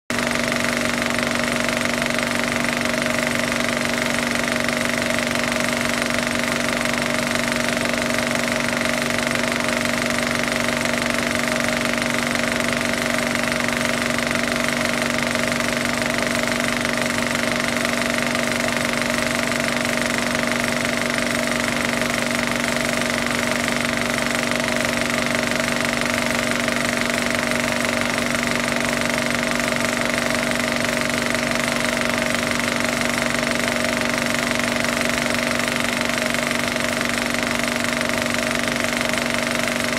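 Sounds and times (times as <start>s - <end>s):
machine running with hum: 0.1s - 39.9s.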